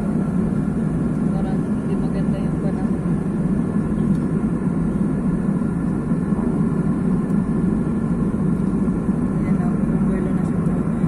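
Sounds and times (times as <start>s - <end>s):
airliner cabin engine roar: 0.0s - 11.0s.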